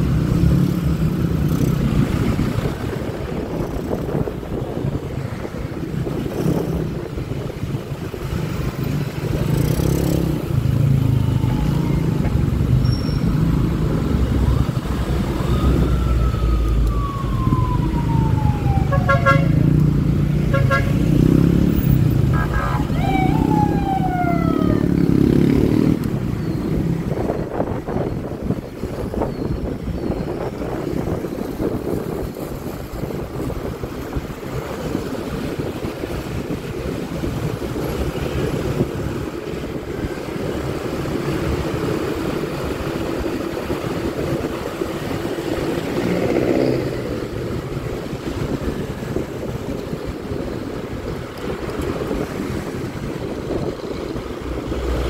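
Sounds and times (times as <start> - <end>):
wind on microphone: 0.0 - 55.0
vehicle horn beeping: 18.9 - 19.6, 20.5 - 21.0, 22.3 - 22.9.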